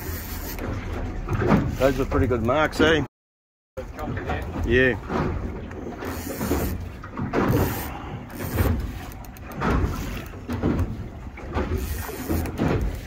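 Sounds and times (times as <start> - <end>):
fishing reel ratchet clicking: 0.0 - 0.6, 6.0 - 6.8, 7.5 - 10.3, 11.8 - 13.0.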